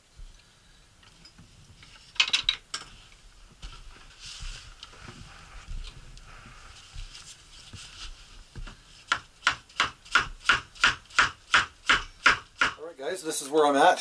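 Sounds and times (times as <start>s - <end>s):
wooden mallet tapping wood: 9.1s - 12.8s.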